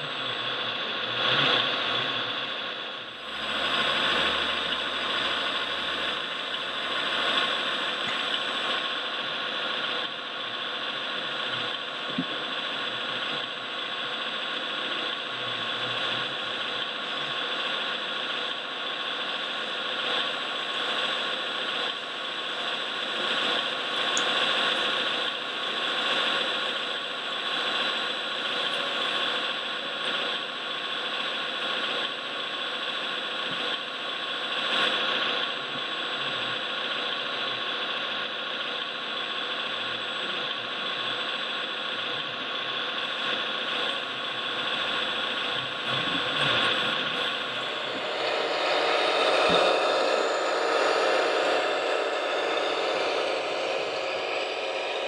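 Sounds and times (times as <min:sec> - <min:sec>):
model machines whirring: 0:00.0 - 0:55.0
thin high whine: 0:00.0 - 0:55.0.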